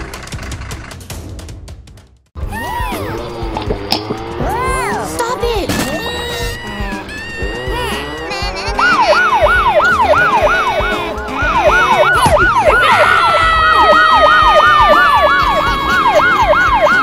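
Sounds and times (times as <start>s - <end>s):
yelp siren: 6.1s - 17.0s
steady siren tone sliding lower: 8.8s - 17.0s.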